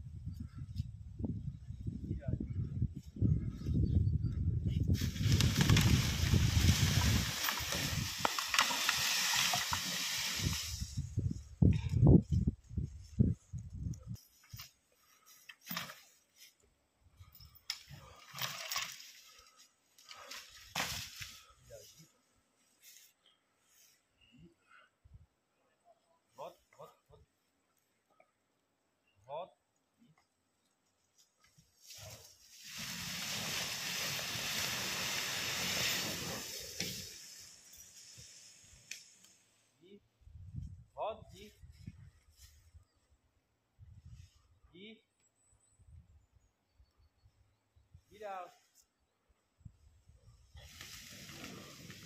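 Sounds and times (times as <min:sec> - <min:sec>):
dry leaves rustling and crunching: 0:05.0 - 0:11.0, 0:32.5 - 0:38.2
footsteps through leaves: 0:05.0 - 0:11.0, 0:31.8 - 0:37.2
log skidding across forest floor: 0:05.0 - 0:11.1, 0:31.8 - 0:38.9, 0:50.6 - 0:52.0
loud rushing hiss: 0:32.6 - 0:38.8.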